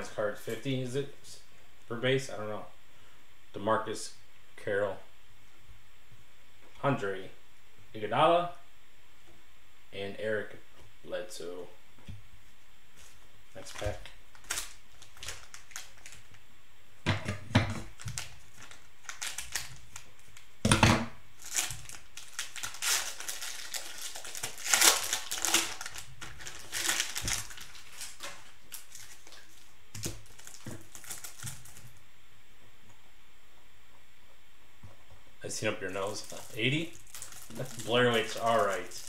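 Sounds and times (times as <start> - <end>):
cellophane wrapper crinkling and tearing: 13.6 - 16.4, 17.8 - 20.5, 21.4 - 32.0, 36.0 - 39.0.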